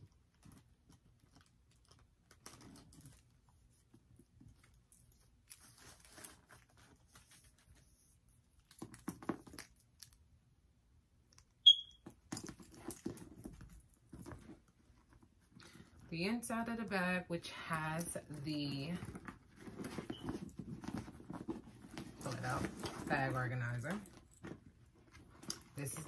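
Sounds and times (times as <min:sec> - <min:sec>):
leather strap rustling and clicking: 0:12.0 - 0:16.0, 0:19.0 - 0:26.0.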